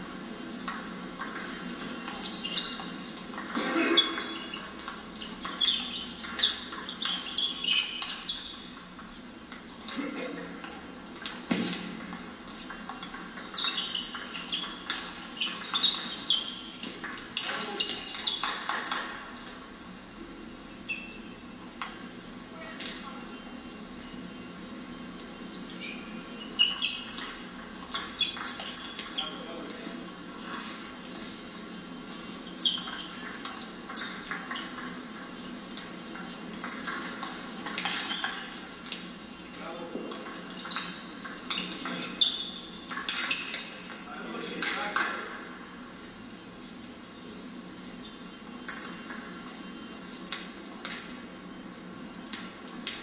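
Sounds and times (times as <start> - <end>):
shoes squeaking on floor: 0.2 - 9.2, 10.7 - 19.8, 20.8 - 22.3, 25.5 - 45.5
ping-pong ball clicking off bats: 0.6 - 10.0, 10.6 - 19.2, 26.5 - 29.2, 32.7 - 39.1, 40.0 - 44.0.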